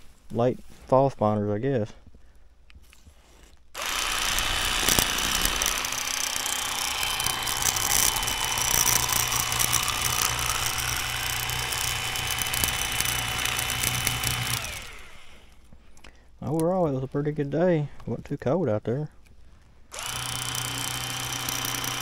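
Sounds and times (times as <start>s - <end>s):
electric knife motor whine: 3.8s - 15.7s, 19.9s - 22.0s.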